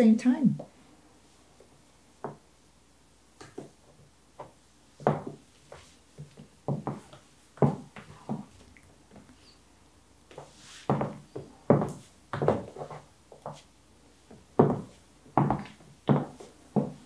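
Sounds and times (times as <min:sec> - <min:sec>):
heels clicking on wooden floor: 0:04.4 - 0:08.6, 0:10.3 - 0:13.6, 0:14.3 - 0:17.0.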